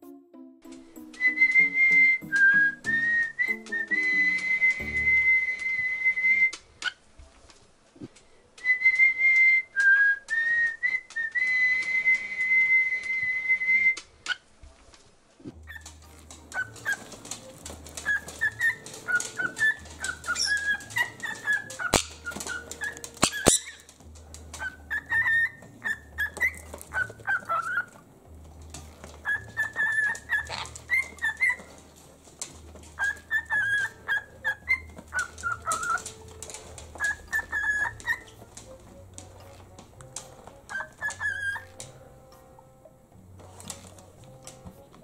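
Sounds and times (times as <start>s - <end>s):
cockatiel whistling: 1.0s - 6.6s, 8.6s - 14.0s, 15.7s - 15.9s, 16.5s - 23.9s, 24.6s - 28.0s, 29.2s - 31.8s, 33.0s - 38.5s, 39.4s - 41.8s.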